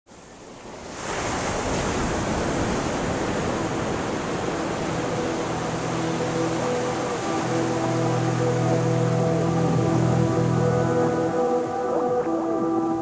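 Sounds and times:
ocean waves breaking: 0.2s - 13.0s
low sustained music notes: 3.7s - 13.0s.

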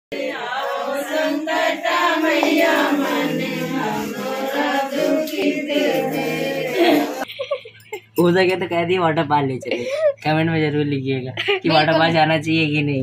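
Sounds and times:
women singing in unison: 0.1s - 7.2s.

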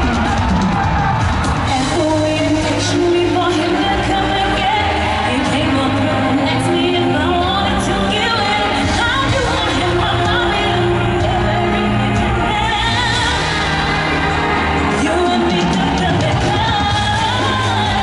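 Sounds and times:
amplified backing music: 0.0s - 18.0s
female vocal trio singing: 1.7s - 18.0s.

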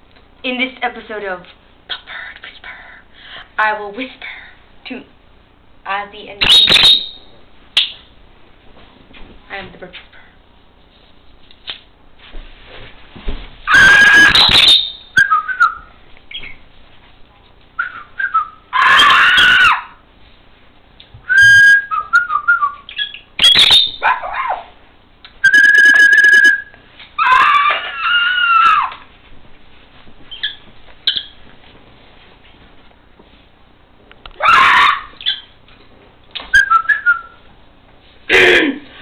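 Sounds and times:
person whistling and squawking: 6.4s - 7.2s, 13.7s - 15.8s, 25.4s - 27.5s.

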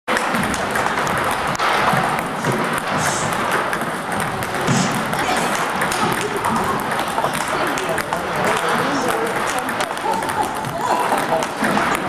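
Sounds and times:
table tennis balls clicking: 0.1s - 12.0s.

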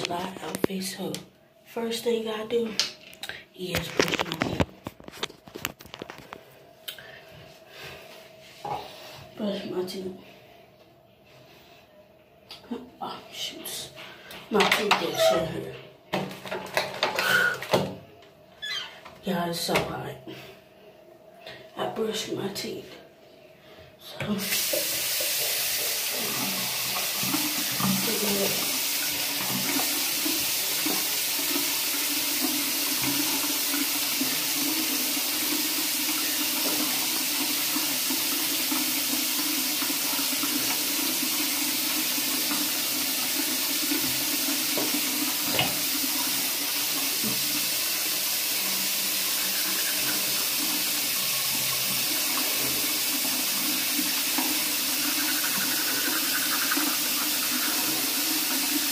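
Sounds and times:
tap running into sink: 43.9s - 46.0s.

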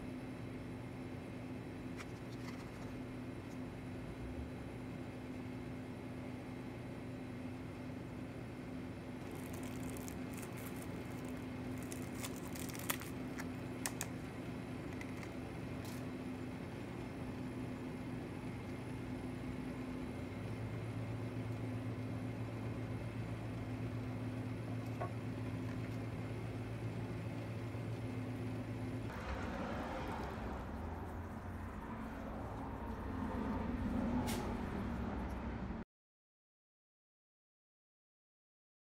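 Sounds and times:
steady low hum: 0.0s - 35.8s
plastic packaging crackling: 9.2s - 14.2s.

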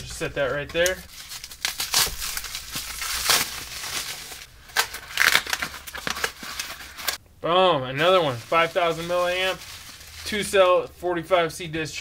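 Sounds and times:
plastic packaging crinkling: 0.9s - 7.2s, 8.0s - 10.8s.

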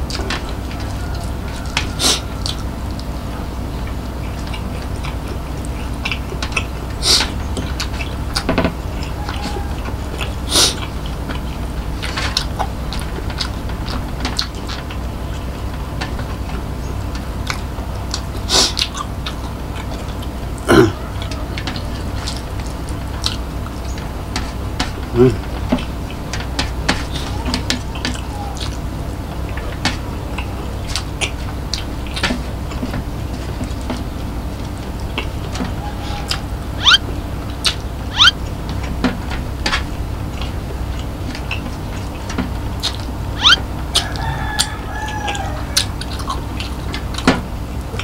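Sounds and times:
person chewing: 10.1s - 13.6s, 17.4s - 23.4s, 36.3s - 38.4s
faint mouth clicks: 36.8s - 37.0s.

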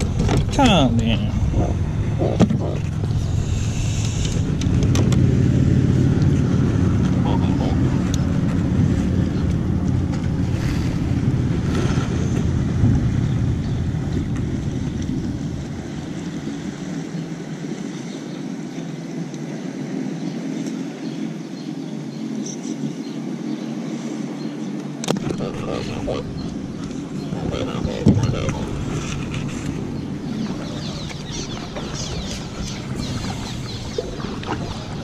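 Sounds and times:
wind buffeting microphone: 0.0s - 18.2s, 24.9s - 35.0s.

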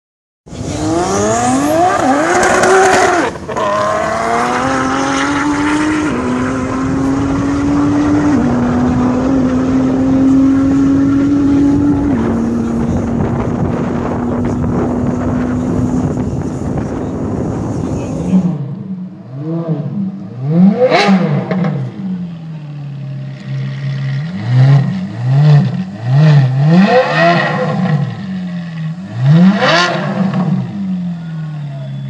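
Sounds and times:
car engine accelerating hard: 0.5s - 31.9s.

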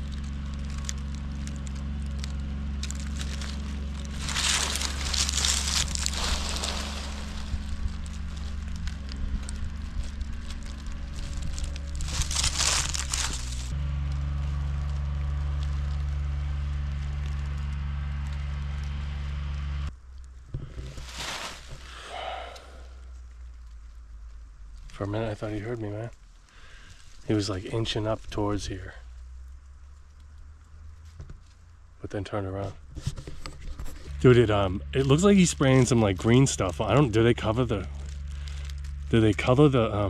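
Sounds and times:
vehicle engine running: 0.0s - 40.0s
loud crackling hiss: 4.1s - 10.5s, 20.8s - 23.1s.

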